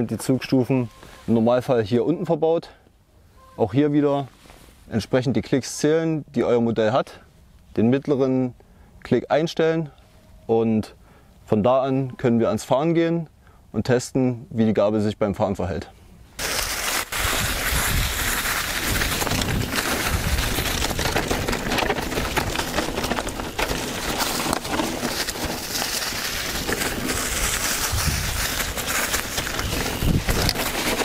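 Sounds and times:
bike tyres rustling through leaves: 16.4 - 31.0.

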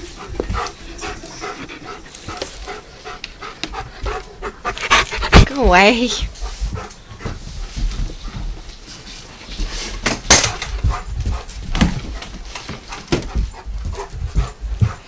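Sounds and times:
dog whimpering and panting: 0.0 - 7.4, 10.8 - 15.0.

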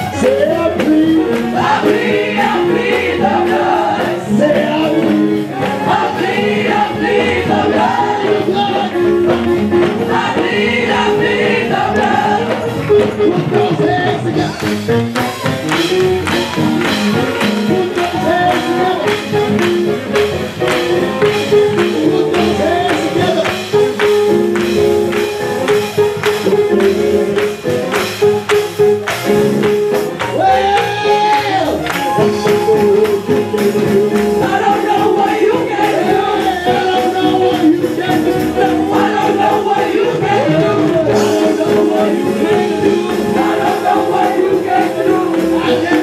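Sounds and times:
gospel choir singing: 0.0 - 25.1, 30.3 - 46.0
hand clapping on a beat: 0.0 - 46.0.

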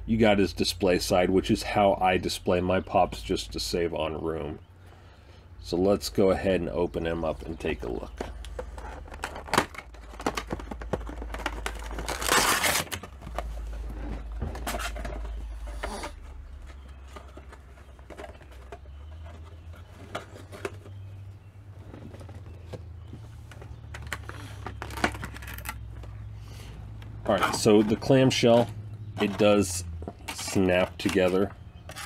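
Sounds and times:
plastic crinkling and clicking: 7.6 - 21.2, 21.9 - 26.2
cardboard box being opened: 8.6 - 21.0.

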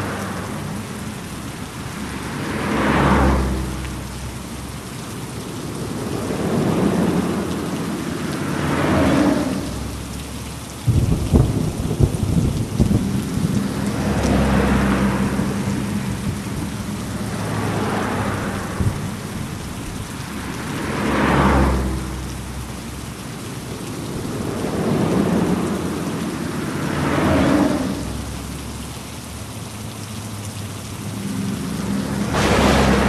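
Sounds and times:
heavy rain falling: 0.0 - 33.0
thunder crack and rumble: 10.8 - 20.5, 31.6 - 33.0.

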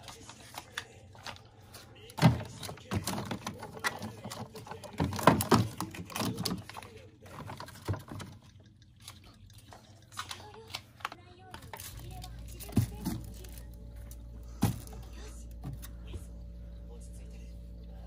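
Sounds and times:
plastic pouches crinkling: 0.0 - 15.8
packets and containers knocking: 2.2 - 8.8, 11.5 - 13.7.

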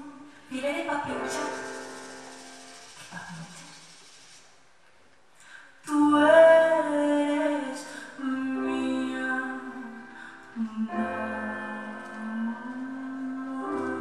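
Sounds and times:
woman singing: 0.0 - 1.7, 5.8 - 14.0.

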